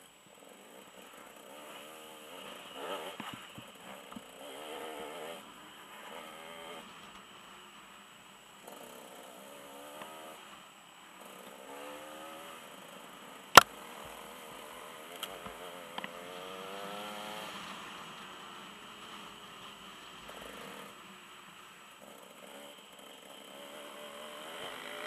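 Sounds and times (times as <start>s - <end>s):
dirt bike engine accelerating: 0.6s - 7.1s, 11.5s - 19.7s, 22.1s - 25.0s.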